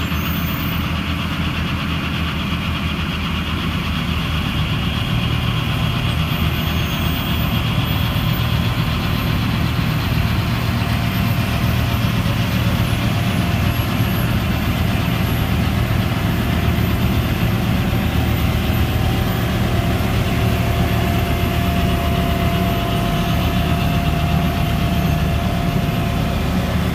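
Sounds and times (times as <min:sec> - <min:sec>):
diesel engine droning: 0:00.0 - 0:26.9
truck engine running: 0:00.0 - 0:26.9
snow blower chewing snow: 0:04.0 - 0:26.9.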